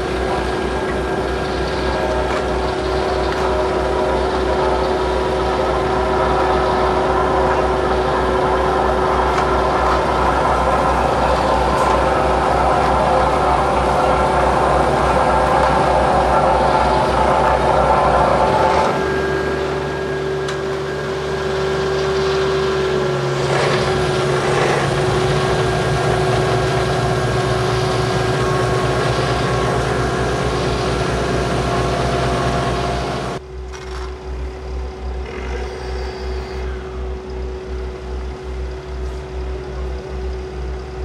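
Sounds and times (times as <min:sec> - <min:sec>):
heavy diesel engine running: 0:00.0 - 0:41.0.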